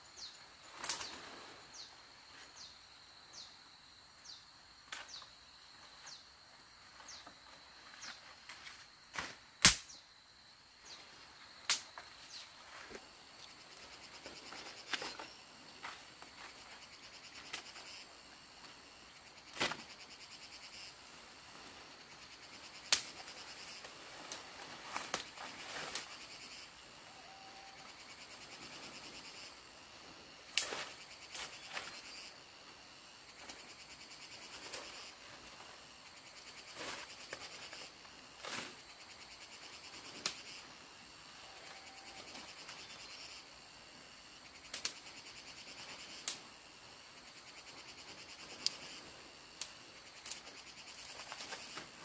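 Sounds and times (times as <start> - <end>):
rustle of leaves: 0.0 - 9.9, 10.7 - 52.0
tree branches snapping: 0.8 - 1.2, 9.2 - 10.0, 11.6 - 12.0
pulsing insect drone: 12.2 - 52.0.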